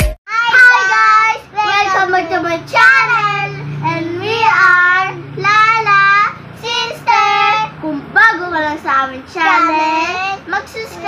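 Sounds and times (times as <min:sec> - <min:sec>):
girls singing together: 0:00.3 - 0:11.0.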